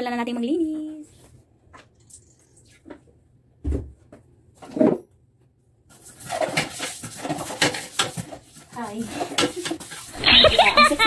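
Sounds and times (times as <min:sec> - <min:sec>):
scrubbing inside toilet bowl: 0:05.9 - 0:11.0.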